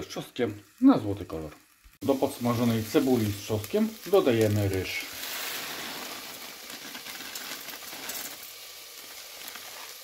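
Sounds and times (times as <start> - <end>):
onion and garlic sizzling: 0.0 - 10.0
rice grains pouring into pot: 2.0 - 10.0.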